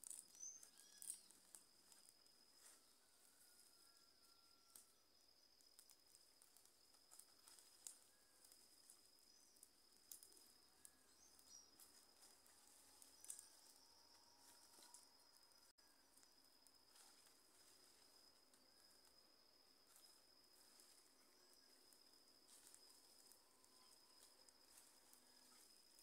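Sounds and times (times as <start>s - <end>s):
bird chirps: 0.0s - 2.1s, 8.0s - 16.0s
campfire crackling: 0.0s - 3.5s, 4.7s - 26.0s
high-pitched insect buzz: 0.0s - 26.0s.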